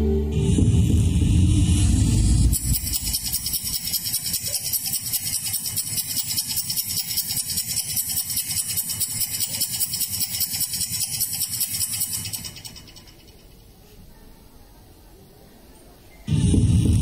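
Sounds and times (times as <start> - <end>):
steady mechanical rattle: 0.5 - 13.7.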